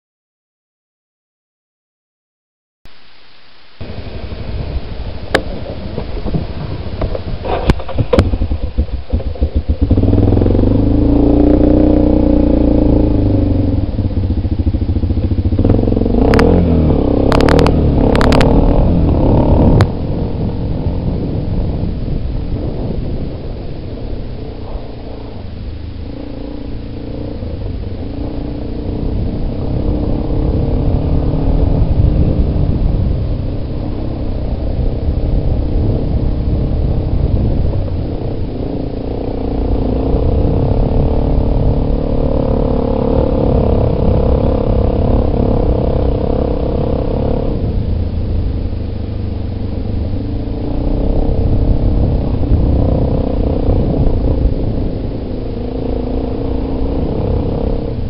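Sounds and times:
atv engine revving: 3.8 - 58.0.

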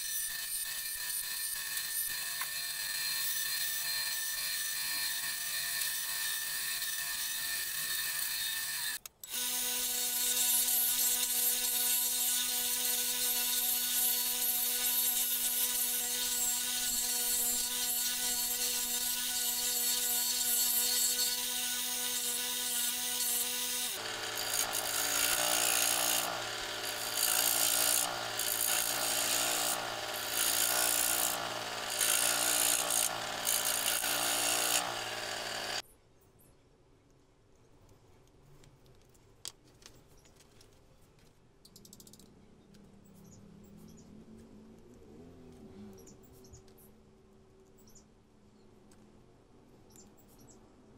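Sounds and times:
bandsaw cutting wood: 0.0 - 35.8
scroll saw cutting: 0.0 - 35.8
wood rasping against sanding disc: 9.4 - 35.8.

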